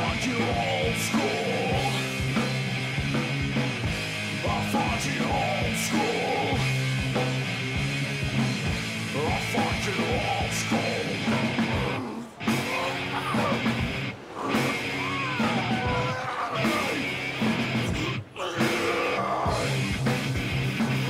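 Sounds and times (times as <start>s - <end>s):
rock music with guitar: 0.0s - 21.0s.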